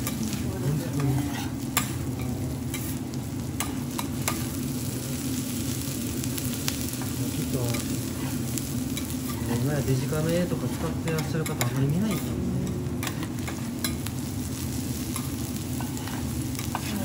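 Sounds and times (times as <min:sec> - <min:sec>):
food sizzling on a griddle: 0:00.0 - 0:17.0
metal spatula scraping griddle: 0:00.7 - 0:02.0, 0:15.8 - 0:17.0.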